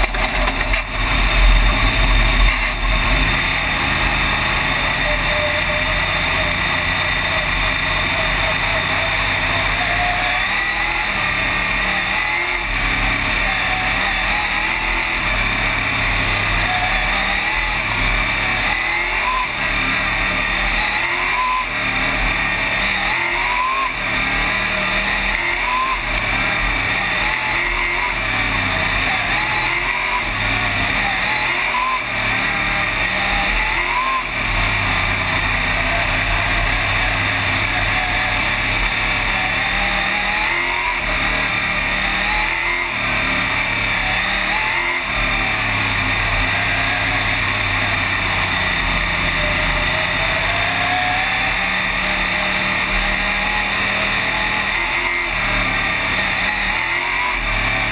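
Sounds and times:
race car engine revving: 0:00.0 - 0:57.9.

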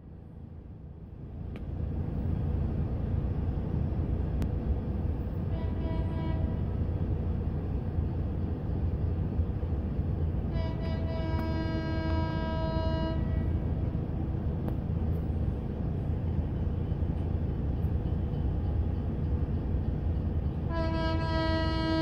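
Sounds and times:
train rumbling: 0:00.0 - 0:22.0
train horn blasts: 0:05.4 - 0:06.8, 0:10.5 - 0:13.7, 0:20.7 - 0:22.0.

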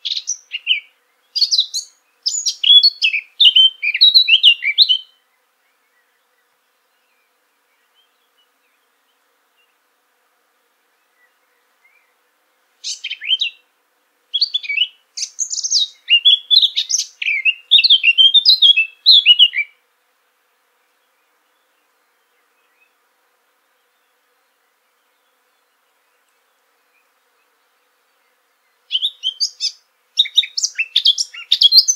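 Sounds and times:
songbird warbling: 0:00.0 - 0:05.1, 0:12.8 - 0:13.6, 0:14.3 - 0:19.7, 0:28.9 - 0:31.9.

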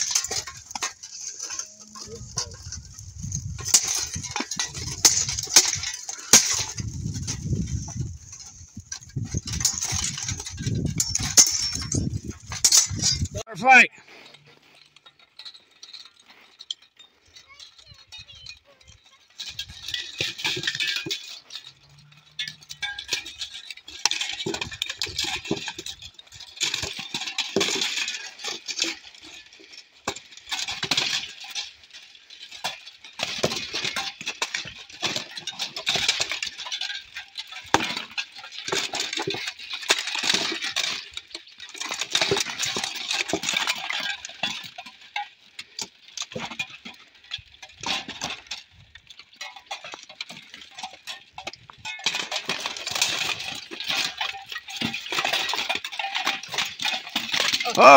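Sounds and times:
plate armour and weapons clanking: 0:00.0 - 0:57.9.

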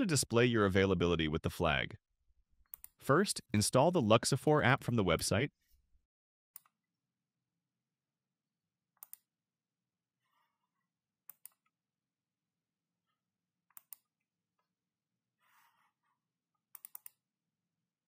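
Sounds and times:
computer mouse clicks: 0:02.7 - 0:03.0, 0:09.0 - 0:09.3, 0:11.3 - 0:11.7, 0:13.7 - 0:14.1, 0:16.7 - 0:17.2.

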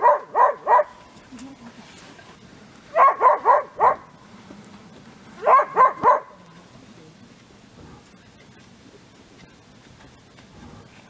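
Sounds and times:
dog barking: 0:00.0 - 0:01.0, 0:02.9 - 0:04.1, 0:05.4 - 0:06.4.

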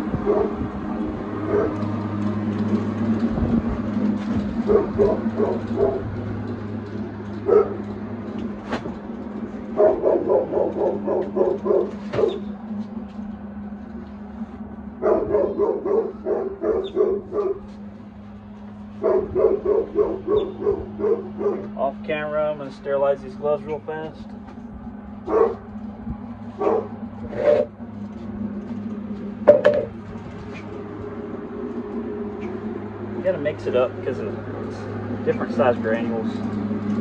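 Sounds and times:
steady low hum: 0:00.0 - 0:37.0
dog barking quickly: 0:01.5 - 0:01.8, 0:04.6 - 0:06.1, 0:07.5 - 0:07.8, 0:09.8 - 0:12.4, 0:15.0 - 0:17.6, 0:19.0 - 0:21.8, 0:25.3 - 0:25.7, 0:26.6 - 0:27.7.

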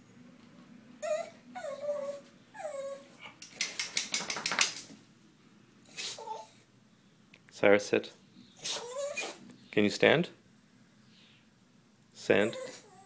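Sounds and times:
dog whining: 0:01.0 - 0:03.4, 0:05.9 - 0:06.6, 0:08.5 - 0:09.5, 0:12.4 - 0:13.0.

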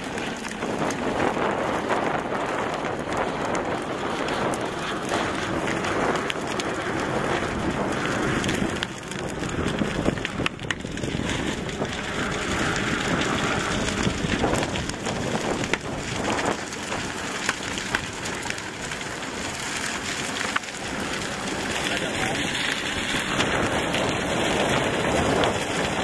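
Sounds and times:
fire crackling and popping: 0:00.0 - 0:26.0
fire rushing noise: 0:00.0 - 0:26.0.

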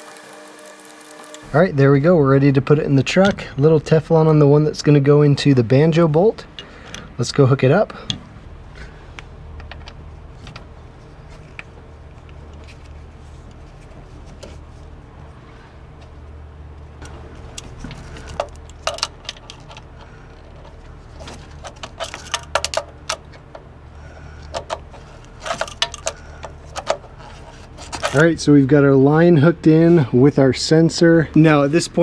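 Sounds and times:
steady low hum: 0:00.0 - 0:32.0
metal tools clinking: 0:17.1 - 0:23.6, 0:24.5 - 0:28.3.

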